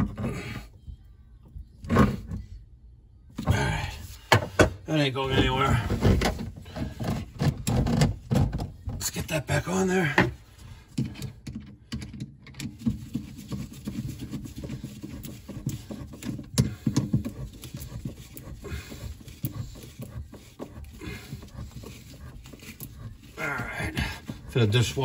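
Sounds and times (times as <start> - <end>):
screwdriver clicking and scraping: 11.0 - 25.0
hose and gloved hands rustling: 12.6 - 25.0.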